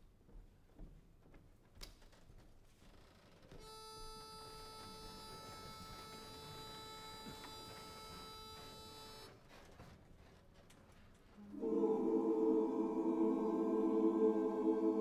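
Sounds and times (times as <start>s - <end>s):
a cappella chorus singing: 11.4s - 15.0s.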